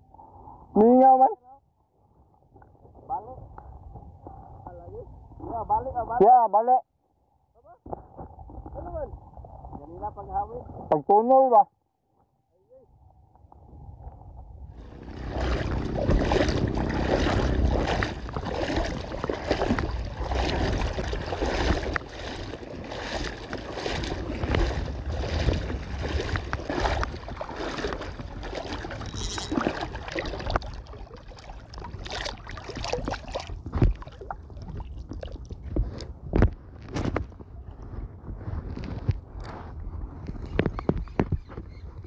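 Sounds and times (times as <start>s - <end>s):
wind rumble on microphone: 12.9s - 42.0s
water sloshing from wading: 14.7s - 36.1s.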